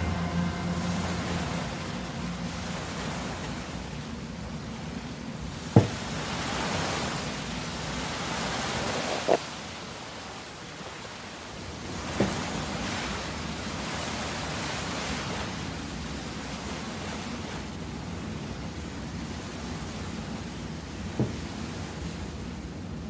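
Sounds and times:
music: 0:00.0 - 0:03.4.

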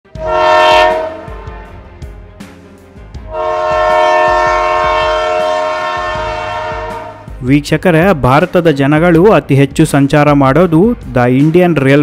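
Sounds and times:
locomotive horn blasts: 0:00.1 - 0:01.9, 0:03.2 - 0:07.3.

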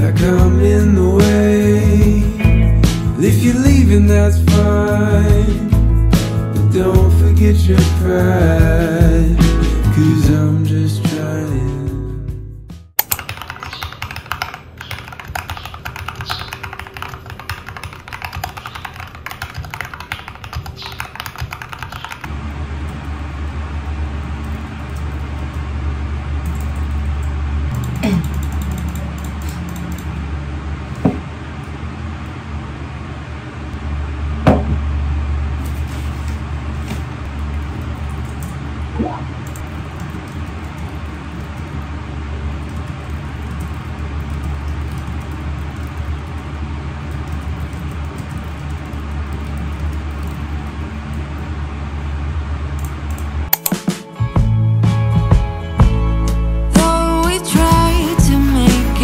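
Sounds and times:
low hum: 0:00.0 - 0:10.8, 0:22.2 - 0:53.6
background music: 0:00.0 - 0:12.9, 0:53.6 - 0:59.0
mechanical keyboard typing: 0:13.0 - 0:22.3, 0:27.7 - 0:30.1
glass knocking on desk: 0:34.5 - 0:34.8.

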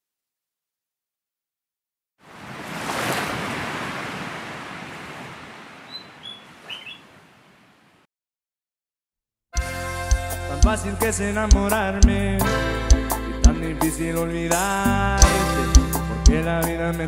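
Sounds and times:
ocean wave washing: 0:02.2 - 0:07.9
bird chirps: 0:05.8 - 0:07.2.

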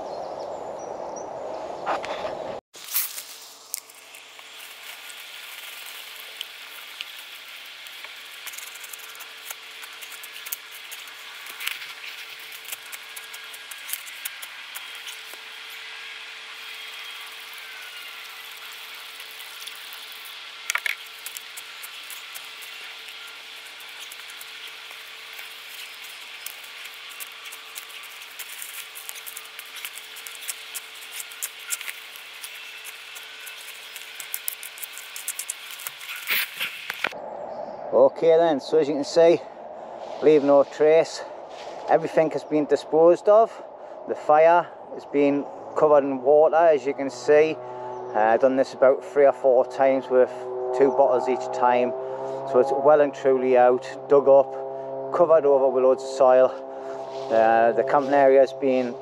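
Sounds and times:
crackles: 0:02.8 - 0:37.2
water hissing on hot embers: 0:02.8 - 0:37.2.

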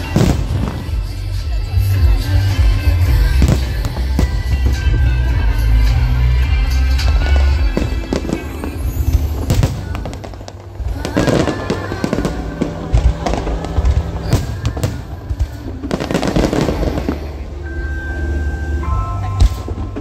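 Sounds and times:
dense firework crackling: 0:00.0 - 0:02.3, 0:06.8 - 0:17.6
fireworks bursting with bangs: 0:00.0 - 0:17.7, 0:19.2 - 0:20.0
music with held notes: 0:00.0 - 0:20.0.

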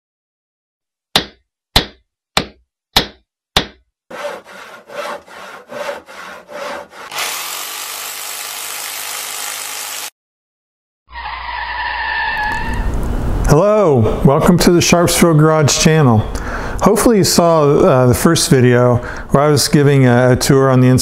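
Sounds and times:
sharp knocks: 0:01.2 - 0:07.0
sawing through wood: 0:04.1 - 0:10.1
steady rasping noise: 0:04.1 - 0:10.1.

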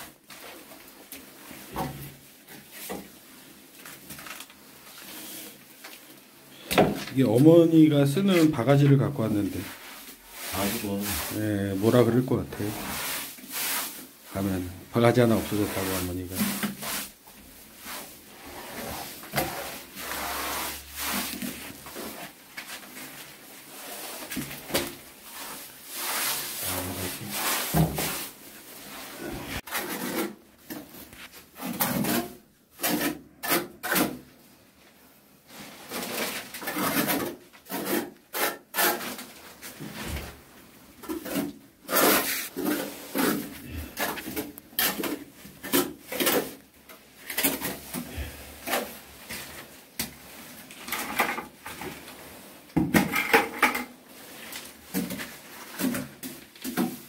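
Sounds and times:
hand tool scraping wet coating: 0:08.1 - 0:30.8, 0:35.8 - 0:39.3, 0:41.0 - 0:52.0.

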